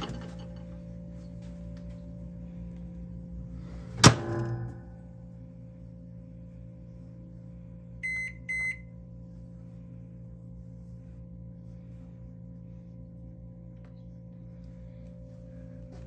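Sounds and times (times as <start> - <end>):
electrical hum: 0.0 - 16.0
microwave keypad beeps: 8.0 - 8.9.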